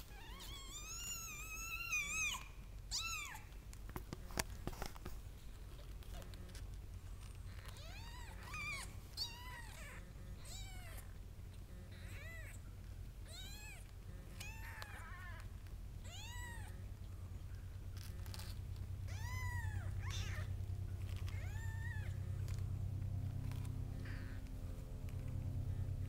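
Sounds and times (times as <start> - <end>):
kittens mewing: 0.0 - 3.6, 7.3 - 16.9, 18.0 - 22.3, 23.5 - 24.6
low steady hum: 0.0 - 26.0.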